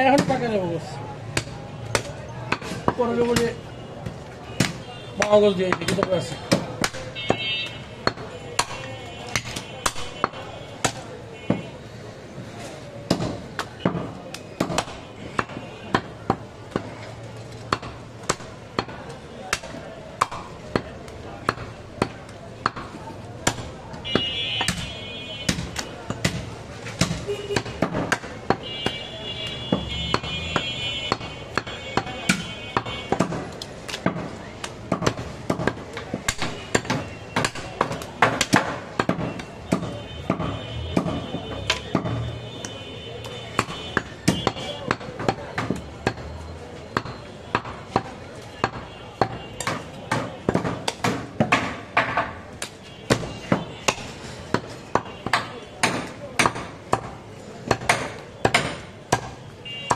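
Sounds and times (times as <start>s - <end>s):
cleavers chopping on wood: 0.0s - 11.8s, 12.6s - 59.9s
knife chopping meat on wood: 25.5s - 34.3s, 53.1s - 57.1s.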